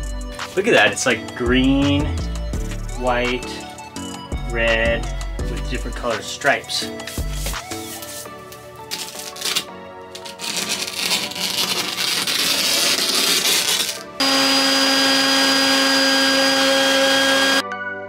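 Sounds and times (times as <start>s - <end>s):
scratchy rustling: 7.0s - 14.1s
shop vacuum running: 14.2s - 17.6s.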